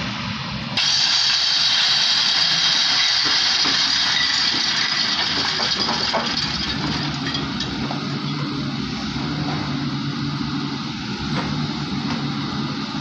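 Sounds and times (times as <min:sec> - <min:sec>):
loud high hiss: 0:00.0 - 0:05.4
diesel engine running: 0:00.0 - 0:13.0.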